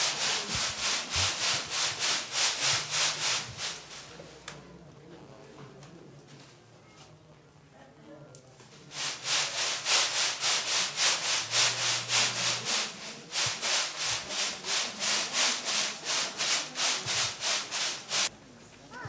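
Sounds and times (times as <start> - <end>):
rhythmic scraping strokes: 0.0 - 4.4, 8.8 - 18.3.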